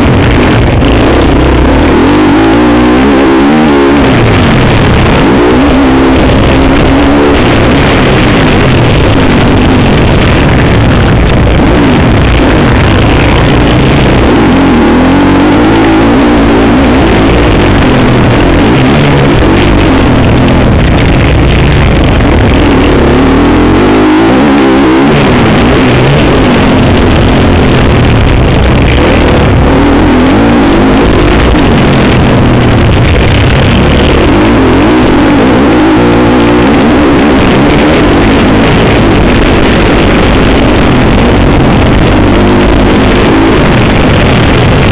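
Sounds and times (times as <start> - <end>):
motocross bike engine revving: 0.0 - 44.9.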